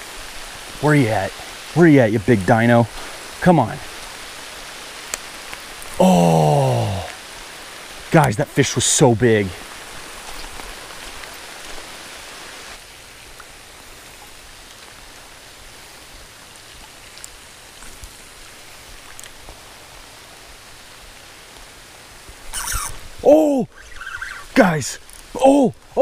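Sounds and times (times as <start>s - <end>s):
rain falling on river and plants: 0.0s - 26.0s
faint ticks: 19.0s - 19.6s.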